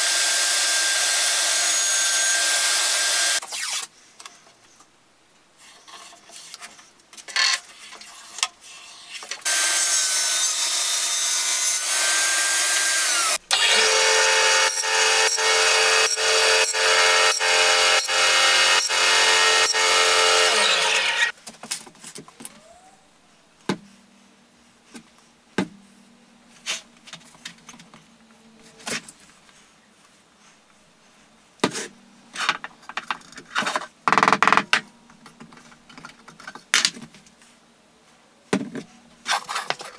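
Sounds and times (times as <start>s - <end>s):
loud power tool cutting: 0.0s - 3.4s, 9.5s - 21.3s
bandsaw cutting wood: 0.0s - 3.8s, 9.4s - 21.3s.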